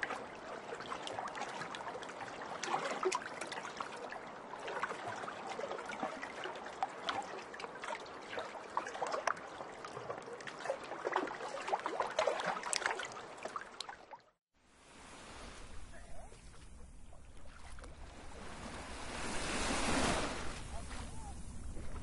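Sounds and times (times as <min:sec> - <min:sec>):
water trickling and gurgling: 0:00.0 - 0:14.4.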